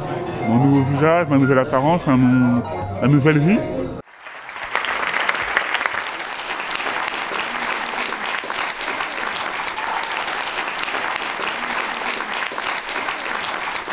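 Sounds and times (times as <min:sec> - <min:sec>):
audience applauding: 0:04.0 - 0:13.9.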